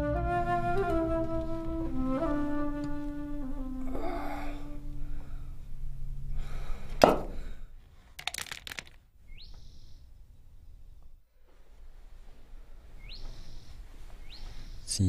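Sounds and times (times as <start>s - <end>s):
rising bird-like call: 0.0s - 5.2s
clatter of clicks: 8.2s - 9.0s.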